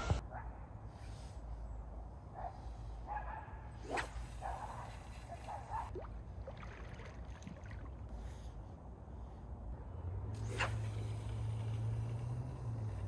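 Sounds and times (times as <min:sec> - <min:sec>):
fishing rod swish: 0:03.7 - 0:06.0, 0:10.3 - 0:13.0
water sloshing around boots: 0:05.9 - 0:08.1.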